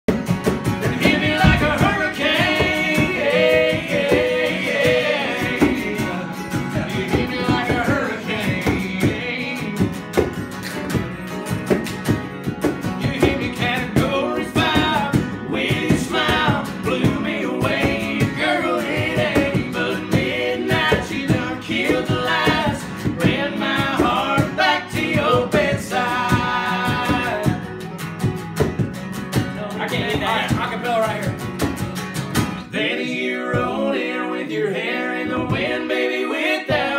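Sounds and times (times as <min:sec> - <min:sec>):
acoustic guitars strumming: 0:00.1 - 0:36.9
man singing: 0:00.8 - 0:10.2, 0:12.9 - 0:27.7.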